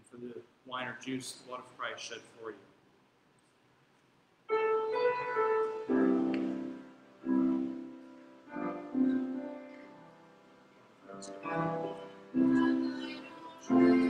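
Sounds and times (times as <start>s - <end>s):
piano playing slow chords: 4.5s - 14.0s.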